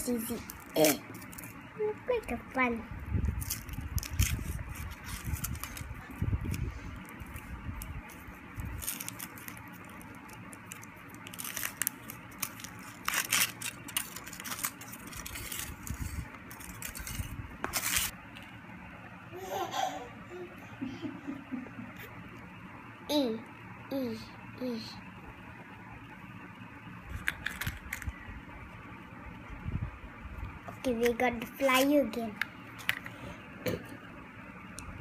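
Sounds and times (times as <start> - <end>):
foil wrapper crinkling and tearing: 3.2 - 18.1, 27.1 - 28.1.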